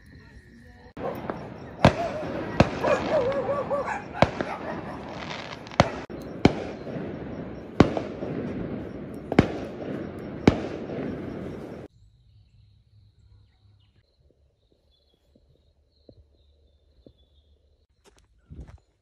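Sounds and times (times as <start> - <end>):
fireworks crackling rumble: 0.0 - 11.9
fireworks bangs: 0.9 - 11.9.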